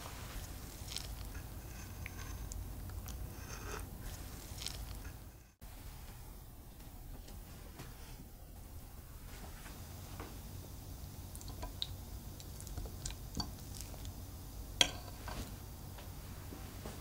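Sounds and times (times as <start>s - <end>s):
fork tines tapping: 14.8s - 15.4s.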